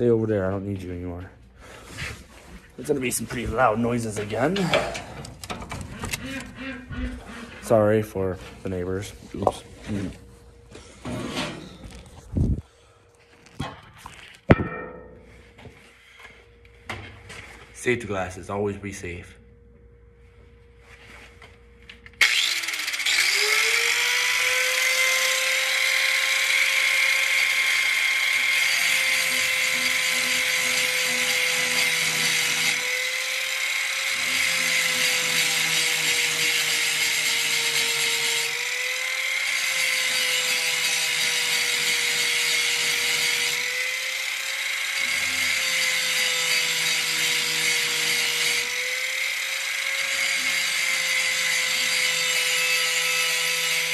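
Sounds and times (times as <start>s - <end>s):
angle grinder whining: 22.0s - 53.9s
grinder grinding steel blade: 22.2s - 53.9s.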